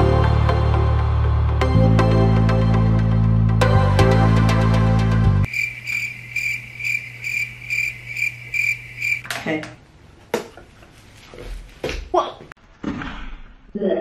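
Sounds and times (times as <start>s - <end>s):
cricket chirping: 5.5s - 9.2s.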